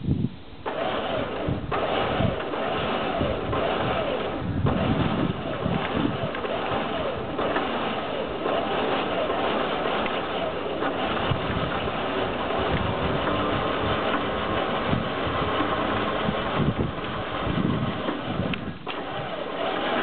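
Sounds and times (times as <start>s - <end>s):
truck engine running steadily: 0.0s - 20.0s
winch pulling: 0.7s - 20.0s.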